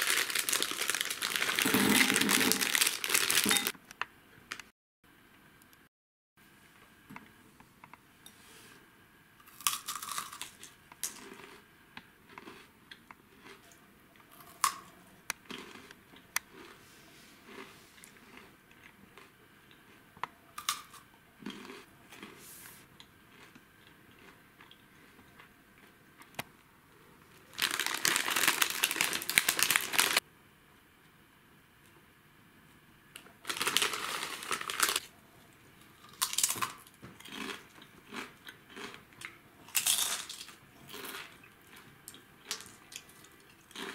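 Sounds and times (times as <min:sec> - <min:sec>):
snack bag tearing: 0:00.0 - 0:03.7, 0:27.5 - 0:30.2, 0:33.4 - 0:35.1
plastic snack packaging crinkling: 0:00.0 - 0:03.8, 0:27.3 - 0:30.2, 0:33.2 - 0:35.1, 0:36.0 - 0:38.9, 0:39.7 - 0:43.9.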